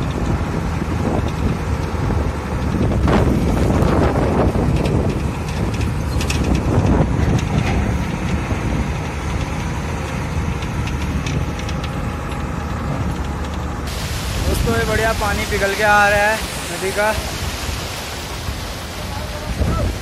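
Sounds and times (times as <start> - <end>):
truck engine running: 0.0 - 20.0
rattles and knocks: 1.2 - 13.7.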